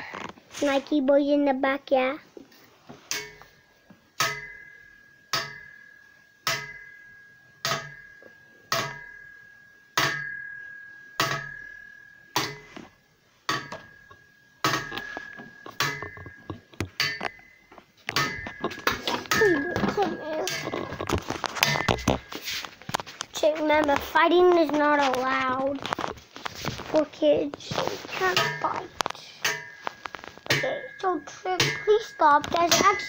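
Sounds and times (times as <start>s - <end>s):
knocks on ringing metal: 8.7s - 9.2s, 10.0s - 10.5s, 11.2s - 11.7s, 31.6s - 33.0s.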